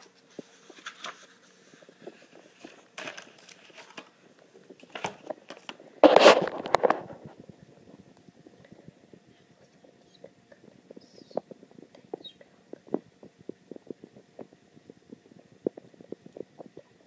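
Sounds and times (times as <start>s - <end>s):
paper pages turning: 0.0s - 4.2s, 4.8s - 7.4s.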